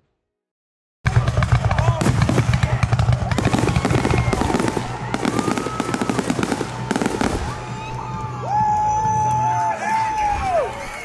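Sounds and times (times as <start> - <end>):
fireworks bursting and crackling: 1.1 - 9.2.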